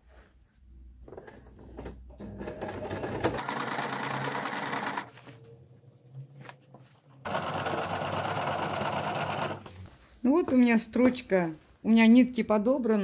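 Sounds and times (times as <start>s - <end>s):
sewing machine stitching: 2.2s - 5.2s, 7.2s - 9.8s.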